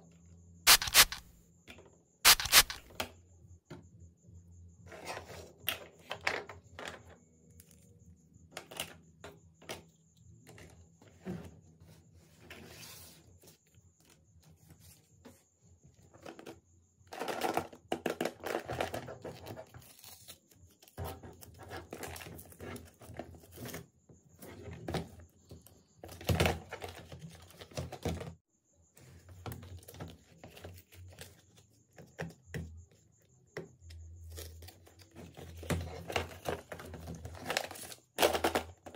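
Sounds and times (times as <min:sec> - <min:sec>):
paper sleeve tearing and crinkling: 0:00.7 - 0:01.2, 0:02.3 - 0:02.8
plastic toy pieces clicking: 0:00.7 - 0:01.3.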